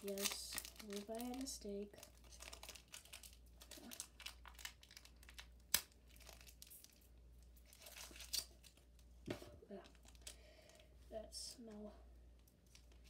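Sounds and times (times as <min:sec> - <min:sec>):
card wrapper crinkling and tearing: 0:00.0 - 0:09.0.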